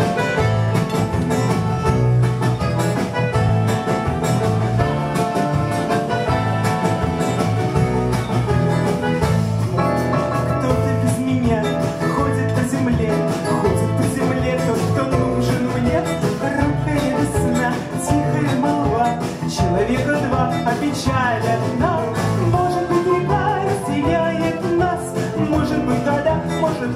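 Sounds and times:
button accordion: 0.0s - 11.0s
acoustic guitar: 0.0s - 26.9s
bass: 0.0s - 26.9s
drums: 0.0s - 26.9s.

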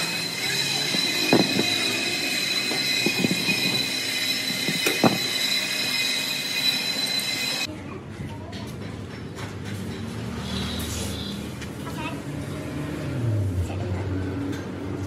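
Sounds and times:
machine whine: 0.0s - 7.7s.

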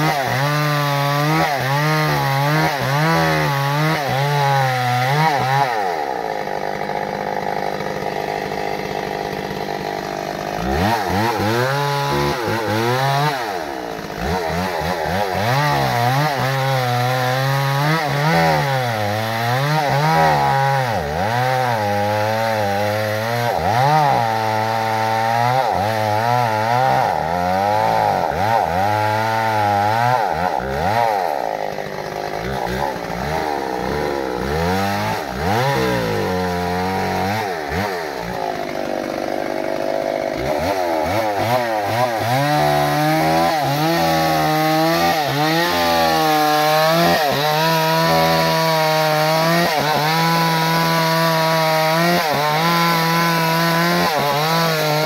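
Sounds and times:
chainsaw cutting into tree trunk: 0.0s - 55.0s.

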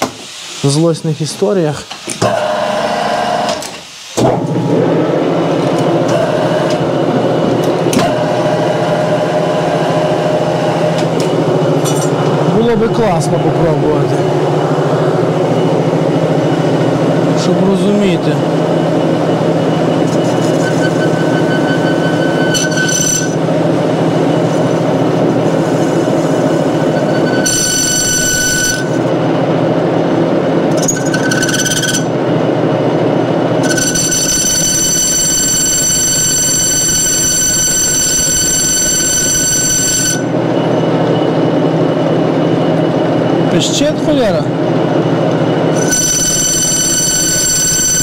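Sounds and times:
metal lathe humming: 4.5s - 38.6s, 39.3s - 48.0s
cutting tool squealing: 19.7s - 23.5s, 24.2s - 29.0s, 30.7s - 32.1s, 33.6s - 38.5s, 45.7s - 47.8s.

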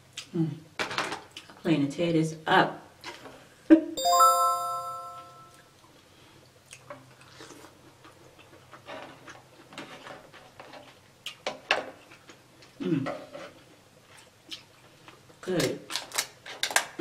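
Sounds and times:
bright chime: 4.0s - 5.6s.

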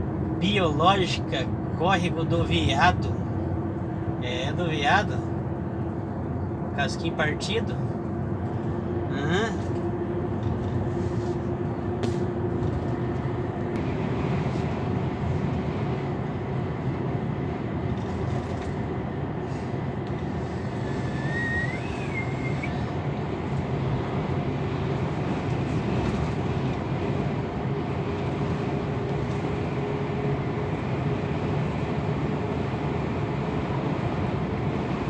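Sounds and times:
vehicle engine and tyre noise: 0.0s - 35.0s
rising and falling high tone: 20.9s - 22.8s.

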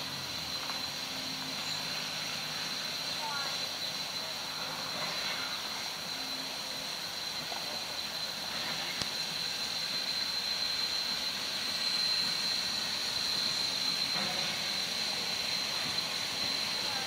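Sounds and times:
steam hissing: 0.0s - 17.0s
thin high-pitched whine: 0.0s - 17.0s.

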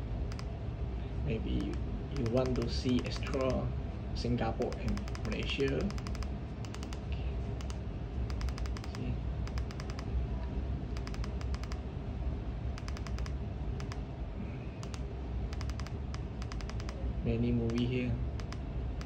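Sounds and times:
steady low hum: 0.0s - 19.0s
remote control buttons clicking: 0.3s - 0.5s, 1.6s - 3.6s, 4.6s - 7.0s, 7.6s - 10.1s, 11.0s - 11.8s, 12.8s - 14.0s, 14.8s - 17.0s, 17.7s - 18.6s.

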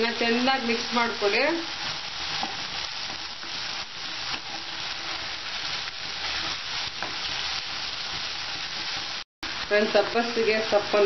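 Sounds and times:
food sizzling in frying pan: 0.0s - 11.0s
spatula scraping pan: 1.8s - 9.2s.

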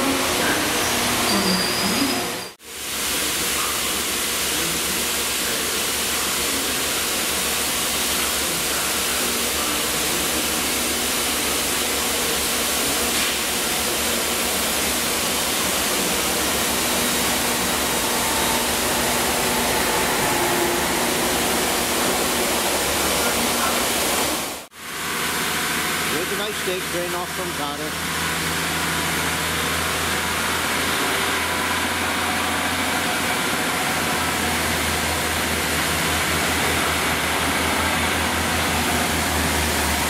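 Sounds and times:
train hum passing: 15.0s - 24.7s, 30.2s - 40.0s.

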